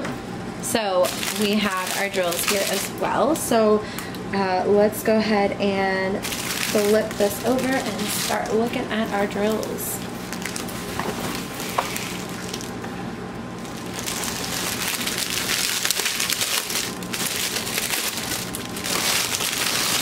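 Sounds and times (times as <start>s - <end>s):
plastic film crinkling: 1.0s - 3.5s, 6.2s - 12.8s, 13.6s - 20.0s.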